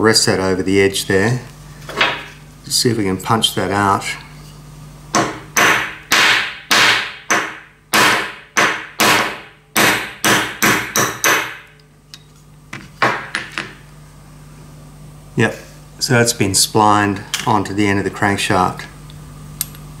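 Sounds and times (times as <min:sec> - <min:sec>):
hammer striking metal punch: 0:05.1 - 0:11.7.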